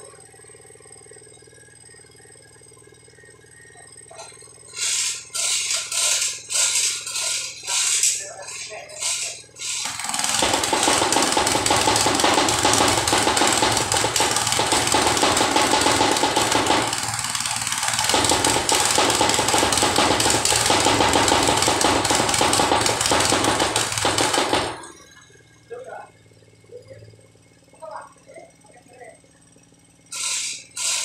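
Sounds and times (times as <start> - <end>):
tamping rammer pounding: 4.1 - 25.0, 30.1 - 31.0.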